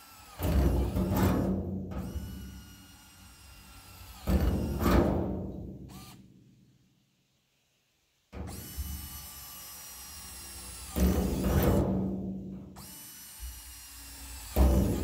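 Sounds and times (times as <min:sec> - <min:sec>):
electric drill whine: 0:00.0 - 0:04.9, 0:05.9 - 0:06.2, 0:08.5 - 0:12.0, 0:12.8 - 0:15.0.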